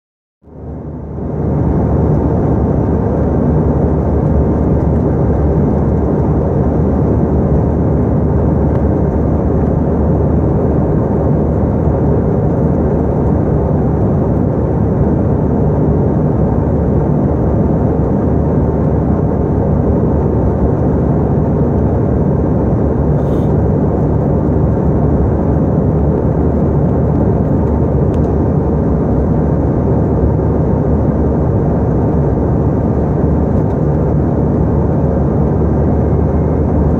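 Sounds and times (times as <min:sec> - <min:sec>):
airliner engine drone: 0:00.4 - 0:36.9
rushing air: 0:23.0 - 0:23.7.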